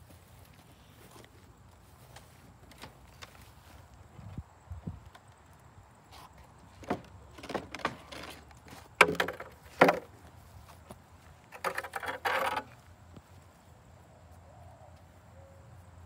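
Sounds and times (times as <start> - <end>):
wooden ramps knocking: 6.8 - 10.2, 11.6 - 12.8.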